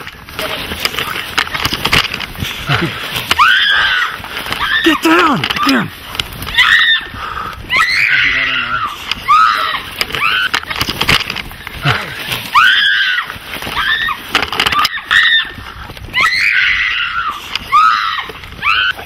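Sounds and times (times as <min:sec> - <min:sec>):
knocks and scuffling: 0:00.0 - 0:19.0
people screaming and yelling: 0:02.9 - 0:10.7, 0:11.8 - 0:19.0.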